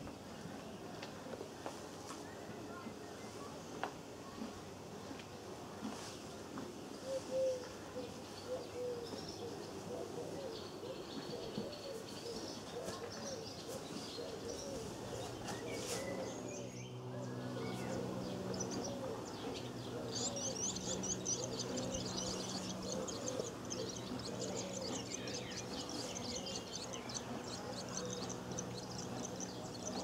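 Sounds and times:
nestlings high-pitched chirping: 0:19.5 - 0:30.0.

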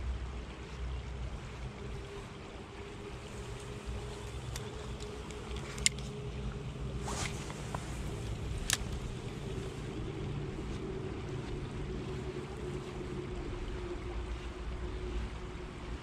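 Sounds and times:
low rumble: 0:00.0 - 0:16.0
fishing reel clicks: 0:03.5 - 0:06.2, 0:08.1 - 0:09.3
fishing rod swish: 0:06.8 - 0:10.8.

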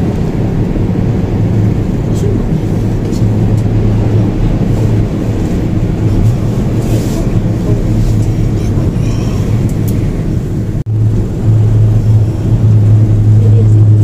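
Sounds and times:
cable car cabin rumble: 0:00.0 - 0:14.0
constant hum: 0:00.0 - 0:14.0.

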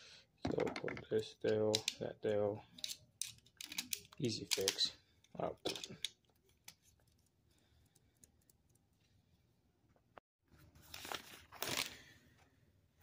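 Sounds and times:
paper rustling and crinkling: 0:10.5 - 0:12.4.

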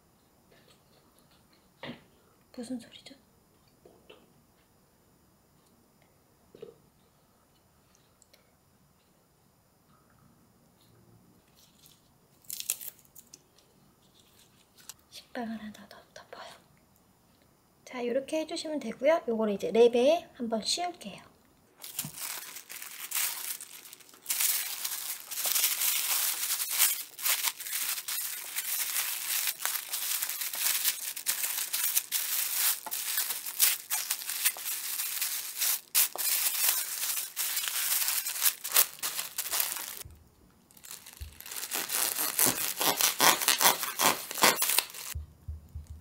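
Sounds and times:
wrapping sheet crinkling: 0:11.6 - 0:13.3, 0:21.8 - 0:40.1, 0:40.7 - 0:45.2
knife cutting wrapped sandwich: 0:24.3 - 0:40.0, 0:40.8 - 0:45.2.

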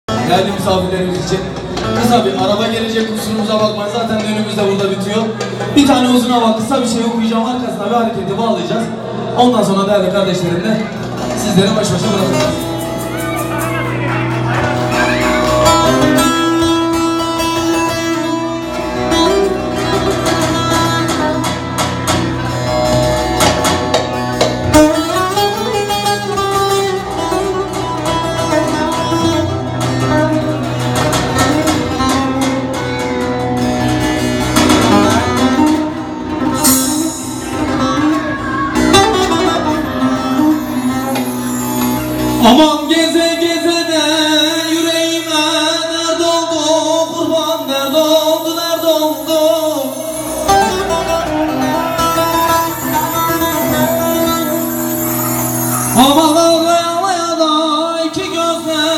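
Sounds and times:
folk band instruments: 0:00.1 - 0:09.4, 0:10.2 - 0:58.9
plucked long-necked lute melody: 0:10.9 - 0:42.5, 0:49.9 - 0:57.2.

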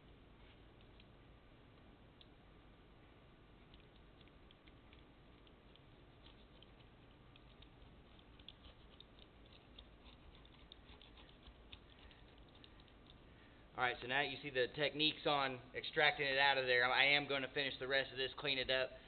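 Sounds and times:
knife scraping along a seam: 0:06.1 - 0:12.4.

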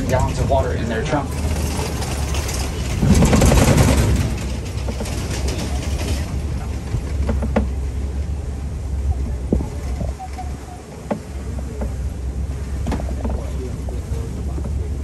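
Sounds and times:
truck engine rumble: 0:00.0 - 0:15.0
truck rattling: 0:00.0 - 0:15.0.

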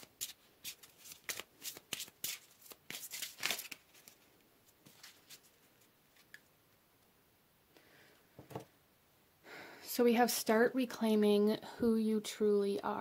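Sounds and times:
cards being shuffled: 0:00.0 - 0:06.4.

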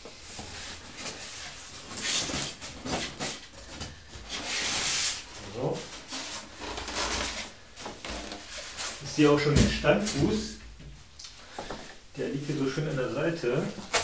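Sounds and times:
foam blocks rubbing cardboard box: 0:00.1 - 0:09.0.

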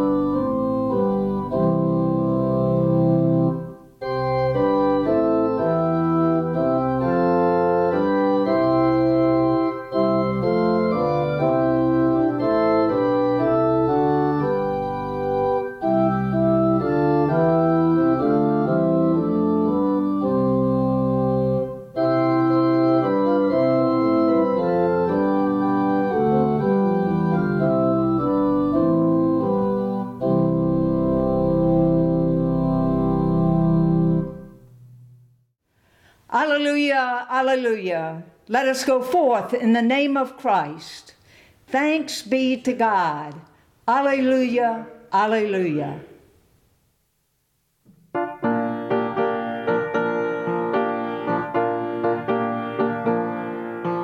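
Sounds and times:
organ playing sustained chords: 0:00.0 - 0:35.2.

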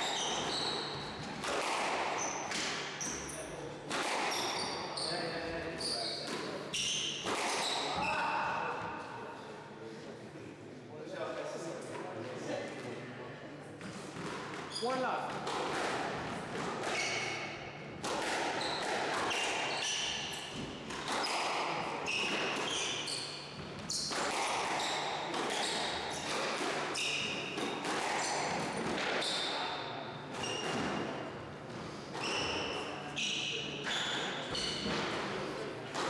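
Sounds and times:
shoes squeaking on wooden floor: 0:00.0 - 0:01.4, 0:30.4 - 0:31.1, 0:31.9 - 0:35.1.

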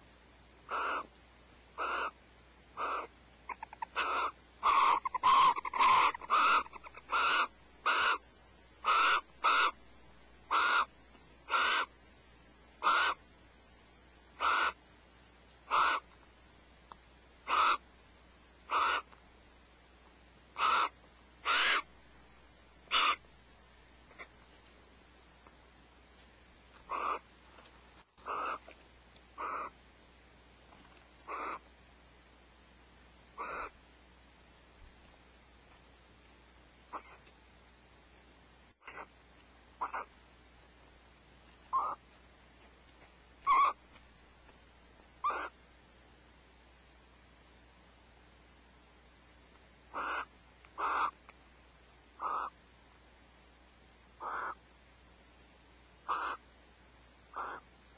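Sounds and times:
owls hissing calls: 0:00.7 - 0:01.1, 0:01.8 - 0:02.2, 0:02.8 - 0:08.2, 0:08.8 - 0:09.8, 0:10.5 - 0:12.0, 0:12.8 - 0:13.2, 0:14.4 - 0:14.8, 0:15.7 - 0:16.1, 0:17.4 - 0:17.8, 0:18.7 - 0:19.1, 0:20.6 - 0:21.9, 0:22.9 - 0:23.3, 0:26.9 - 0:27.3, 0:28.2 - 0:28.7, 0:29.4 - 0:29.8, 0:31.2 - 0:31.7, 0:33.4 - 0:33.8, 0:36.9 - 0:37.2, 0:38.8 - 0:39.1, 0:39.8 - 0:40.1, 0:41.7 - 0:42.0, 0:43.4 - 0:43.8, 0:45.2 - 0:45.6, 0:49.9 - 0:51.2, 0:52.2 - 0:52.6, 0:54.2 - 0:54.6, 0:56.0 - 0:56.4, 0:57.3 - 0:57.7.

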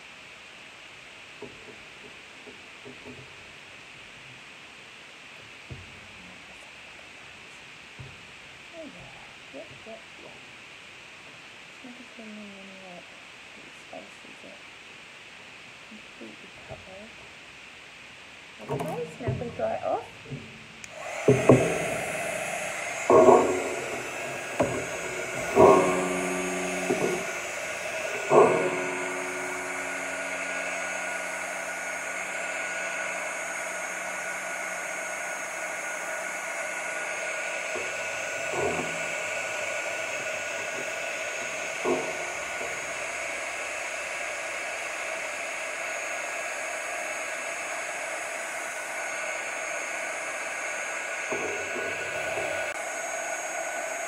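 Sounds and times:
heat tool blowing: 0:18.6 - 0:54.0
sharp ringing knocks: 0:20.3 - 0:35.0, 0:37.7 - 0:43.3.

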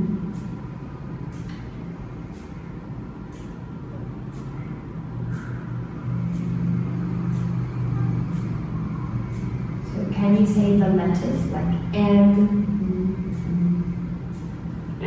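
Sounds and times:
low motor hum: 0:00.0 - 0:15.0.

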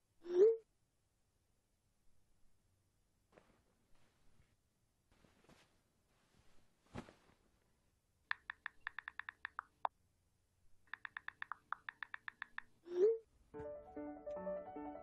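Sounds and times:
soft rustle of movement: 0:03.3 - 0:07.9
phone keyboard ticks: 0:08.3 - 0:09.9, 0:10.9 - 0:12.7.

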